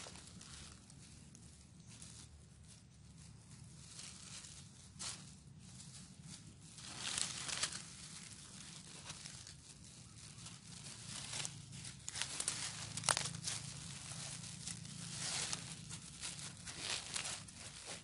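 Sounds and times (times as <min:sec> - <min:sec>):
plastic mesh net rustling: 0:06.7 - 0:18.0.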